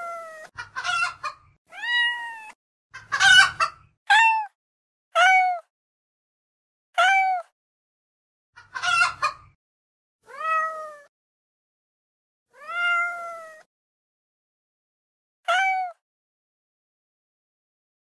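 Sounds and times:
cat meowing: 0:00.0 - 0:00.5, 0:01.7 - 0:02.6, 0:04.1 - 0:04.6, 0:05.2 - 0:05.6, 0:07.0 - 0:07.5, 0:10.3 - 0:11.1, 0:12.5 - 0:13.7, 0:15.5 - 0:16.0.

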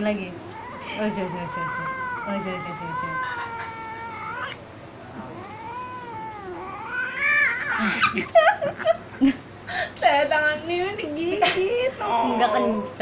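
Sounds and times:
cat yowling: 0:00.3 - 0:08.2.

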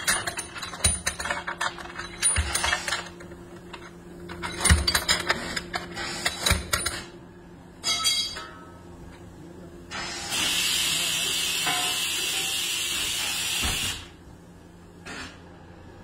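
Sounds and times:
metal tools clinking: 0:00.0 - 0:07.1
loud hiss of venting pressure: 0:10.2 - 0:14.1.

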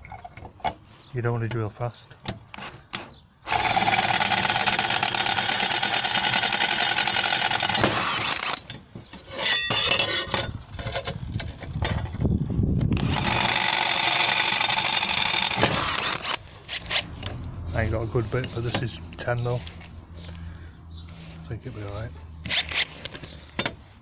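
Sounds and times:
drill drilling through metal: 0:03.5 - 0:08.6, 0:13.0 - 0:17.0.

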